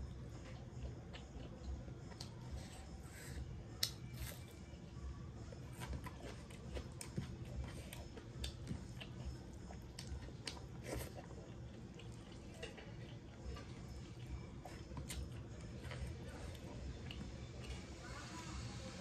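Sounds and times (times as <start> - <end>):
person chewing: 5.7 - 17.8.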